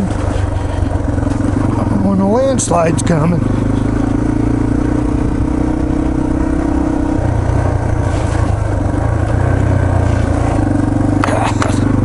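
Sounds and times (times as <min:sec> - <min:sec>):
dirt bike engine running: 0:00.0 - 0:12.0.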